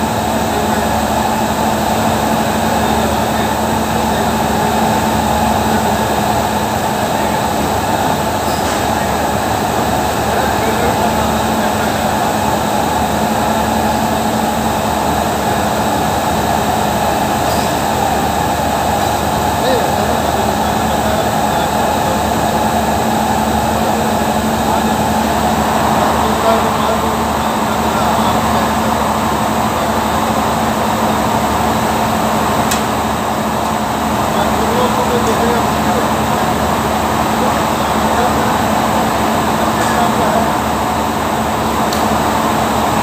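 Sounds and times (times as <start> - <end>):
factory machinery whirring: 0.0 - 43.0
sharp click: 32.7 - 32.9.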